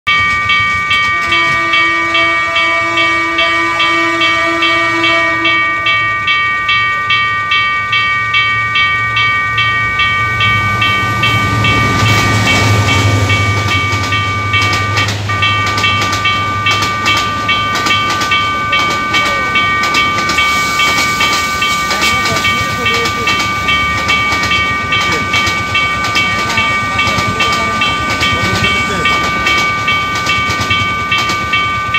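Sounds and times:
coaches rattling over rails: 0.1 - 31.9
level crossing alarm ringing: 0.1 - 31.9
train engine rumble: 0.1 - 31.9
train horn: 1.1 - 6.0.

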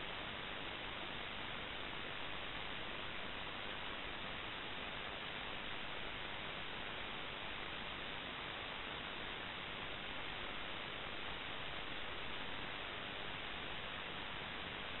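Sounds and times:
static hiss: 0.0 - 15.0.

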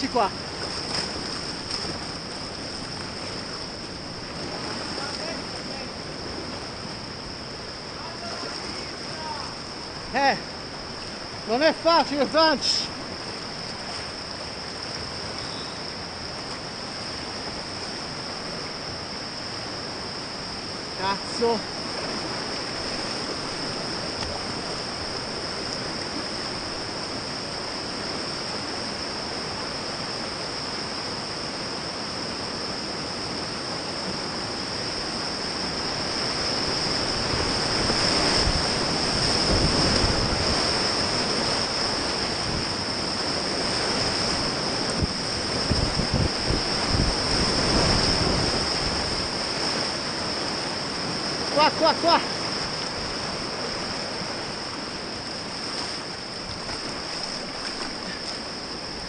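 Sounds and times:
low water splashing: 0.0 - 15.5, 35.6 - 59.0
river rapids rushing: 0.0 - 59.0.

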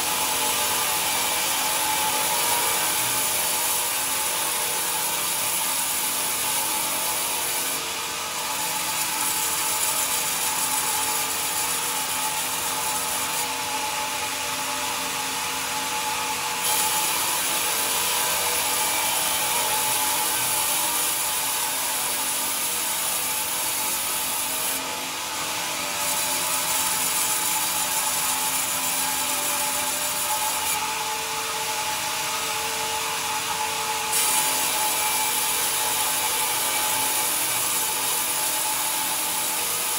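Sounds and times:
bandsaw blade cutting wood: 0.0 - 39.9.

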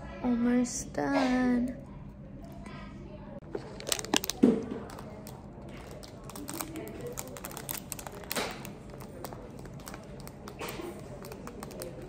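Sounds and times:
plastic packet crinkling: 3.5 - 12.0
fingers clicking on plastic packet: 3.6 - 12.0.

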